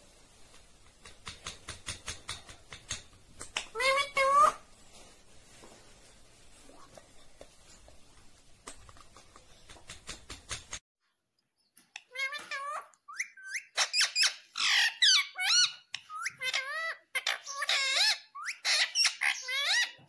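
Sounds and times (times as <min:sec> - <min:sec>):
parrot squeaky calls: 0:03.5 - 0:04.7, 0:12.0 - 0:20.0.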